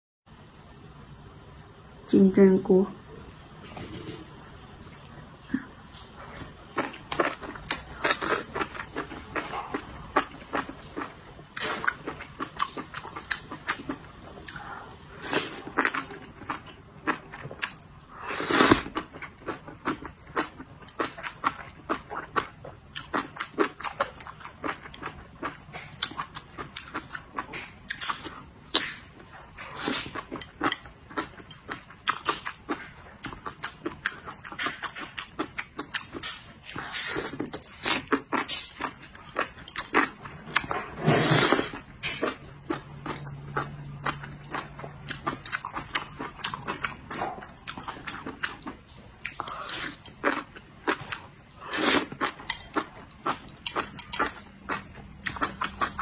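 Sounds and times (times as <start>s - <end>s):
wet chewing and smacking: 18.8s - 41.0s, 41.7s - 56.0s.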